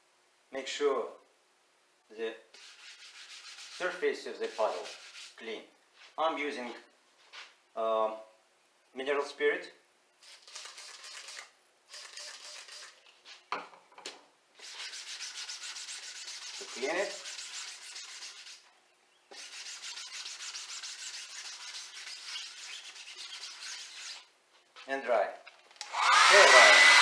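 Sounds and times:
rag rubbing paddle surface: 2.6s - 5.4s, 14.6s - 18.7s, 19.3s - 24.3s.

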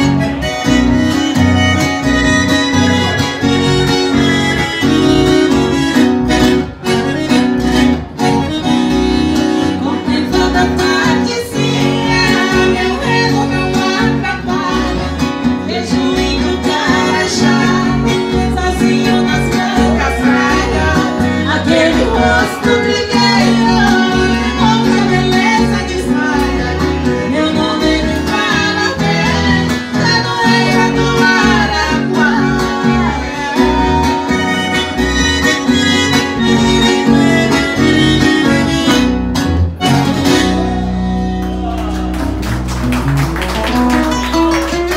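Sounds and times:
piano accordion melody: 0.0s - 41.7s
acoustic guitar: 0.0s - 44.9s
woman singing: 9.6s - 34.3s
man singing: 9.8s - 34.2s.

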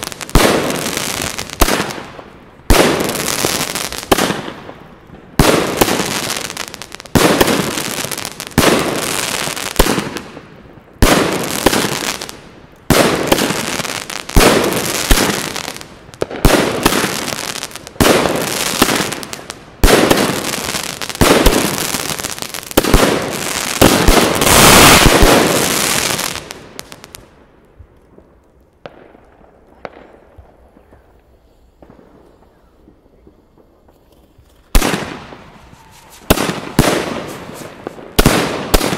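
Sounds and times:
fireworks bangs: 0.0s - 27.3s, 28.1s - 38.9s
faint firework pops: 28.1s - 38.9s.

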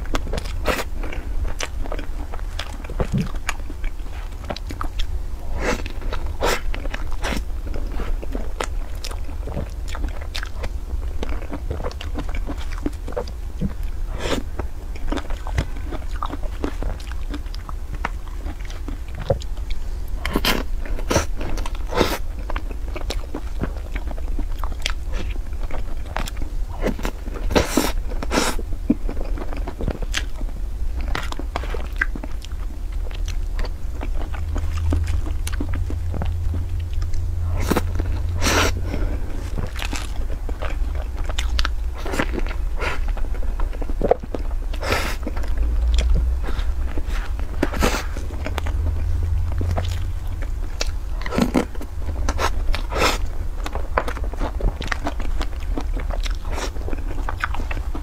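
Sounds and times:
wet chewing clicks and smacks: 0.0s - 5.2s, 5.8s - 58.0s
low steady hum: 0.0s - 58.0s.

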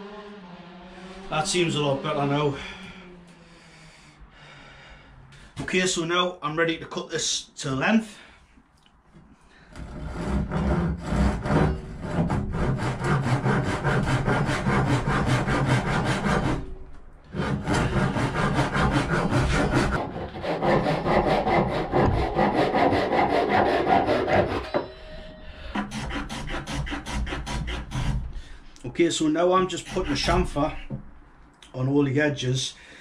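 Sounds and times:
hand saw cutting wood: 9.7s - 24.8s, 25.7s - 28.6s, 29.5s - 31.0s.

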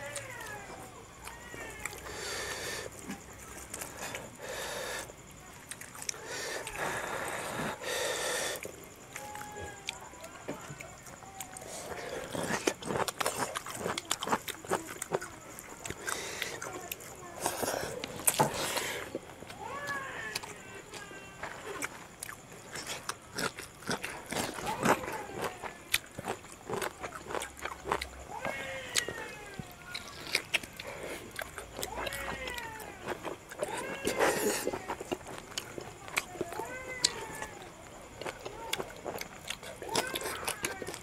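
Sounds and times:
hands squishing wet food: 9.1s - 41.0s.

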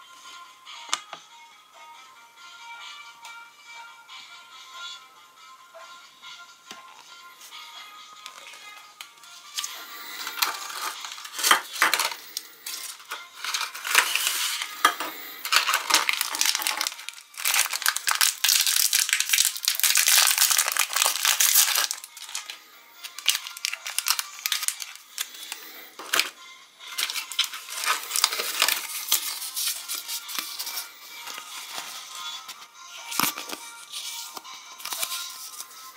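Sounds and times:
foil wrapper crinkling: 9.5s - 26.3s, 27.0s - 32.3s, 33.1s - 35.7s
paper packets rustling: 9.5s - 26.3s, 26.9s - 35.9s.

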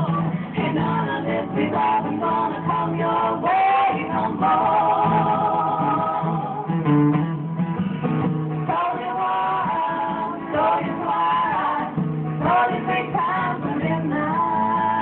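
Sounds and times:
women singing in harmony: 0.0s - 6.8s, 8.6s - 15.0s
strummed acoustic guitars: 0.0s - 15.0s.

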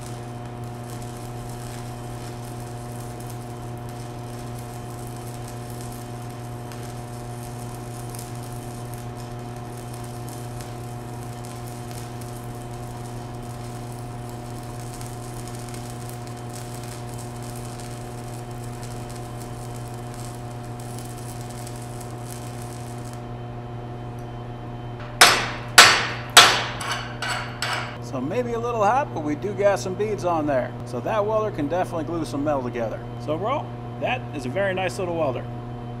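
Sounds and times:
welding arc hiss and crackle: 0.0s - 23.4s, 25.0s - 28.0s
sharp metallic knocks: 25.0s - 28.0s.

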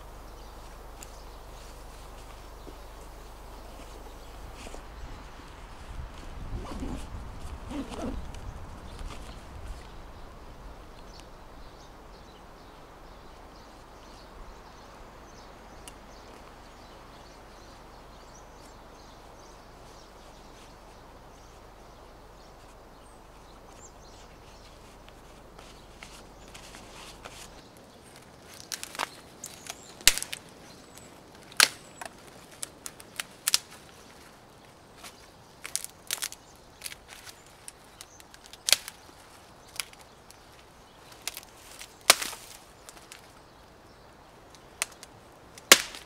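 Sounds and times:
gloves rustling: 0.5s - 9.9s, 22.6s - 43.7s
dry twigs snapping: 24.5s - 43.7s, 44.4s - 46.0s.

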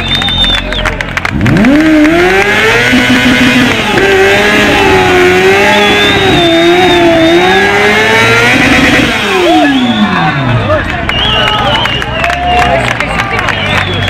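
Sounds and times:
motorcycle engine revving: 1.0s - 11.0s.

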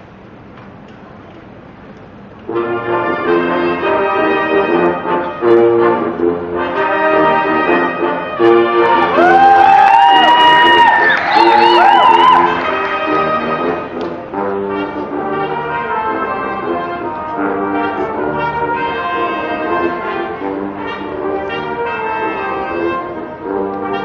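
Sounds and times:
brass band sustained chords: 2.3s - 24.0s.

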